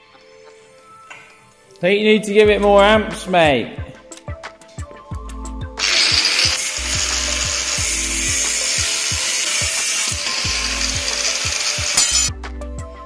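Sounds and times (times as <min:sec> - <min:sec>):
angle grinder cutting steel: 0:05.8 - 0:12.3.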